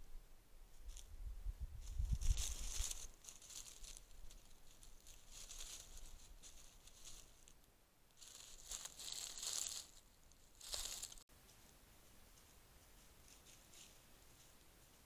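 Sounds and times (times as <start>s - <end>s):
footsteps crunching dry leaves: 1.8s - 7.5s, 8.2s - 11.2s.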